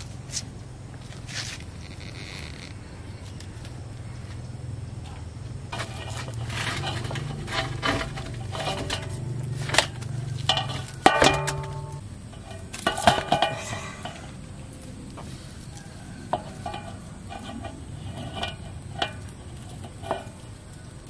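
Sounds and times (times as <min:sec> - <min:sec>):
metal basin clanking: 0:05.0 - 0:14.4, 0:16.3 - 0:20.4
wire-mesh trap rattling: 0:05.7 - 0:14.4.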